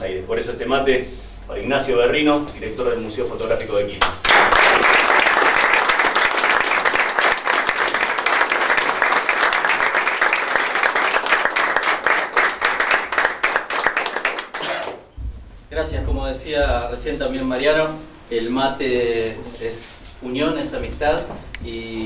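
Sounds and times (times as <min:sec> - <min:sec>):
crowd applauding: 0:04.2 - 0:15.1.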